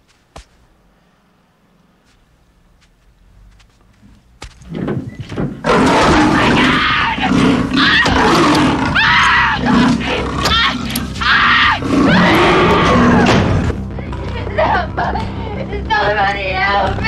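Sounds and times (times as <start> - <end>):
leopard snarling: 5.6 - 13.7
woman screaming in terror: 8.9 - 9.7, 10.4 - 13.3.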